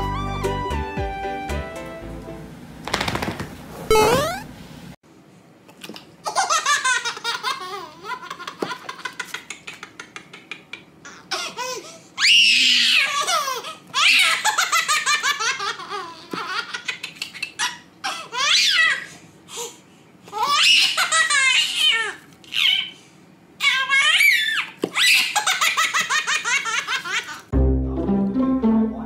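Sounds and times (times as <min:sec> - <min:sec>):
baby laughing: 0:05.8 - 0:12.0, 0:12.8 - 0:19.1, 0:20.3 - 0:23.0, 0:23.6 - 0:27.5
baby squealing with laughter: 0:11.0 - 0:19.2, 0:20.3 - 0:23.0, 0:23.6 - 0:27.5.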